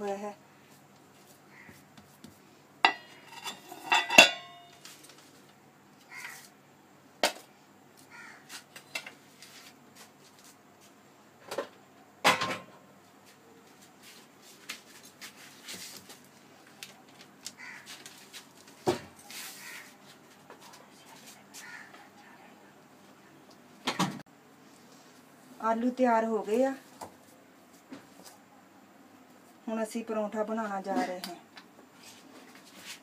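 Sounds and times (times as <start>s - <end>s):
steel bowls and plates clattering: 2.8s - 4.7s.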